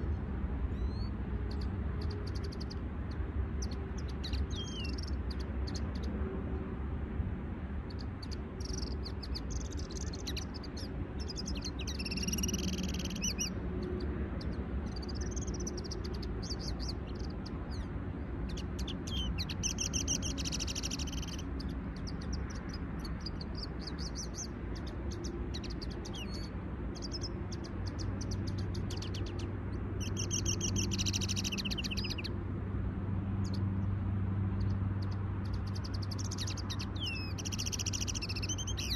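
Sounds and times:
finches twittering song: 0.0s - 6.2s, 7.8s - 32.4s, 34.5s - 38.9s.

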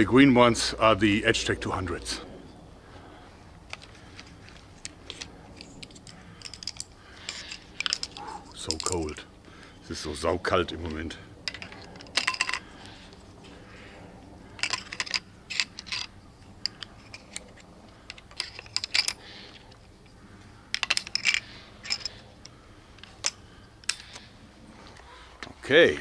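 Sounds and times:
crossbow magazine clicking and rattling: 3.6s - 9.2s, 10.8s - 13.3s, 14.2s - 24.4s.

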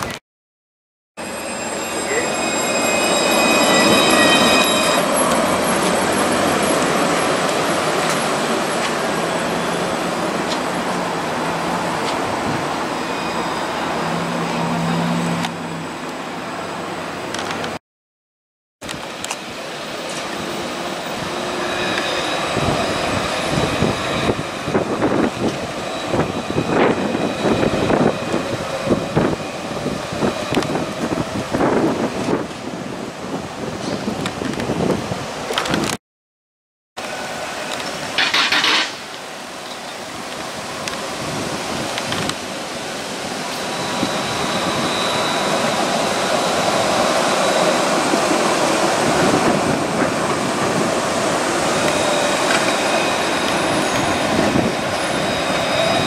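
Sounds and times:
tram rolling on track: 1.2s - 17.8s, 18.8s - 36.0s, 37.0s - 56.0s
wind buffeting microphone: 22.4s - 36.0s, 48.0s - 52.2s.

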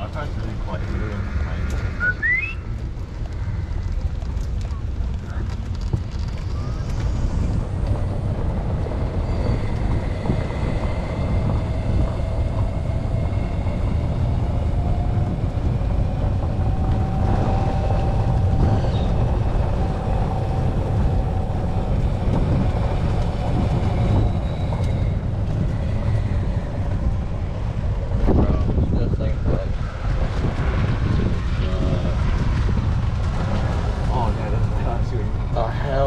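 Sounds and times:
faint whine: 0.0s - 36.0s
vehicle rumbling in motion: 0.0s - 36.0s.

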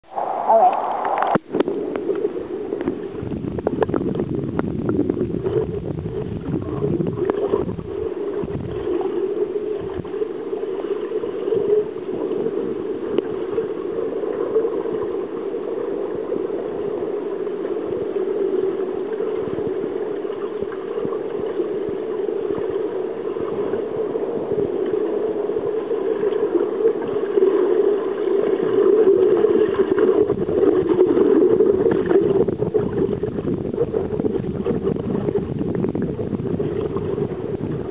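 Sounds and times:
underwater rushing hum: 0.0s - 37.9s
underwater clicks and knocks: 2.8s - 8.8s.

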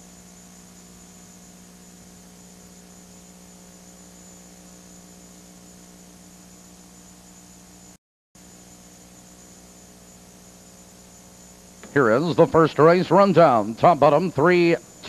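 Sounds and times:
electrical mains hum: 0.0s - 15.0s
thin high whine: 0.0s - 15.0s.

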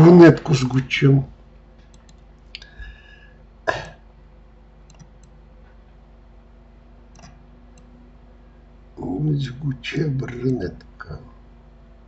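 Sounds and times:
steady low hum: 0.0s - 12.0s
computer mouse clicks: 1.8s - 2.7s, 4.9s - 5.4s, 7.1s - 7.9s.

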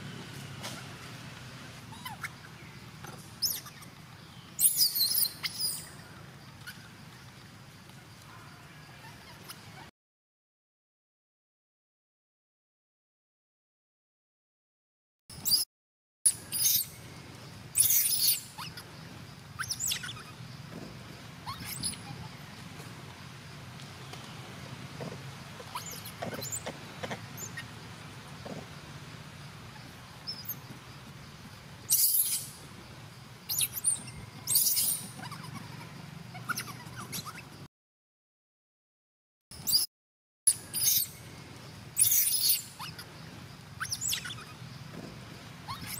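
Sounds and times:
baby monkey squealing: 1.9s - 3.9s, 4.6s - 5.9s, 16.3s - 17.0s, 17.8s - 18.8s, 19.6s - 20.4s, 21.4s - 22.3s, 25.6s - 26.6s, 27.4s - 27.7s, 30.3s - 30.6s, 31.9s - 32.6s, 33.5s - 37.6s, 39.6s - 39.9s, 40.5s - 41.2s, 42.0s - 43.1s, 43.8s - 44.6s, 45.6s - 45.9s.

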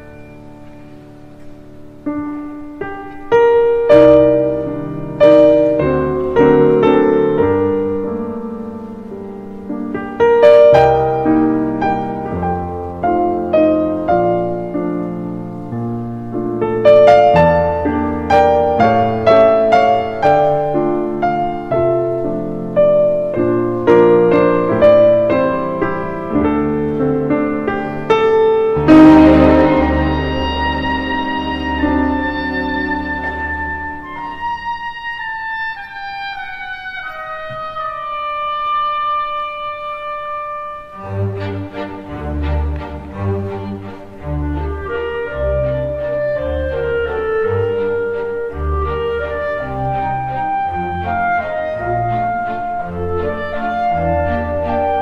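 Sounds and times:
slow solo piano: 0.0s - 41.0s.

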